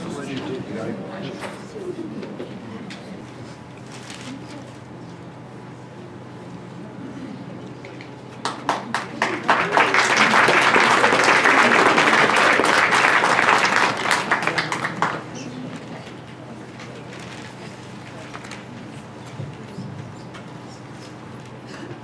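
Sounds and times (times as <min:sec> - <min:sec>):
audience applauding: 0:08.4 - 0:15.5.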